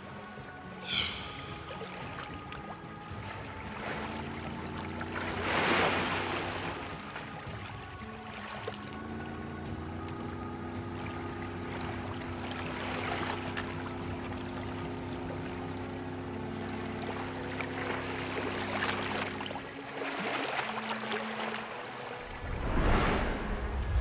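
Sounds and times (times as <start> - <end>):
low engine hum: 0.2 - 19.9, 21.0 - 24.0
steady tone: 0.8 - 2.1, 22.3 - 24.0
water sloshing and rushing: 1.3 - 24.0.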